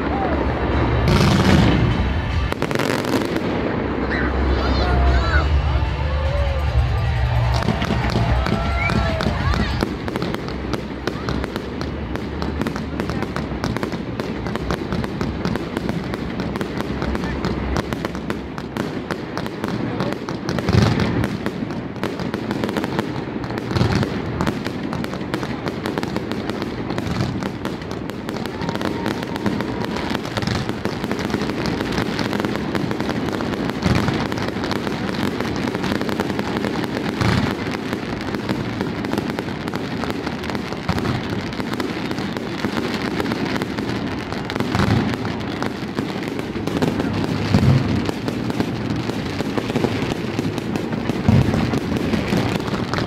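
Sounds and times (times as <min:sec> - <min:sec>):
fireworks bangs and crackle: 0:00.0 - 0:53.0
loud firework boom: 0:00.1 - 0:11.4.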